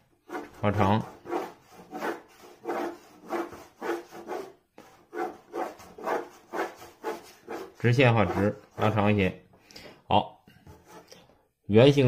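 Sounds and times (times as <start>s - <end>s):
pencil scratching on paper: 0.2s - 9.1s, 10.7s - 11.2s.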